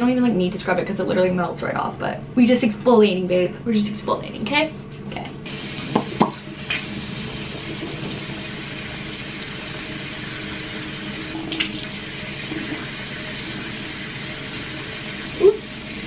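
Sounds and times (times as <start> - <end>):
tap water pouring into basin: 5.5 - 16.0.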